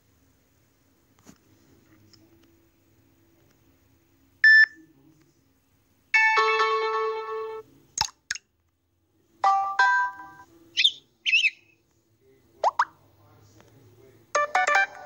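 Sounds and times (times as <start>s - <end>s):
bird-like chirps: 10.8s - 11.8s
bubble pops: 12.6s - 12.9s.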